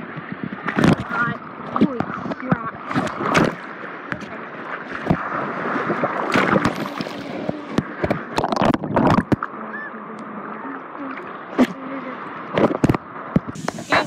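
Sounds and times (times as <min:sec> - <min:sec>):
sea surf sloshing and splashing: 0:00.0 - 0:14.0.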